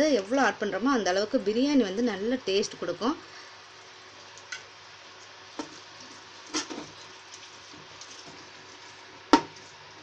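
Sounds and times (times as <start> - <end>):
spoon scraping in pot: 5.6 - 8.9.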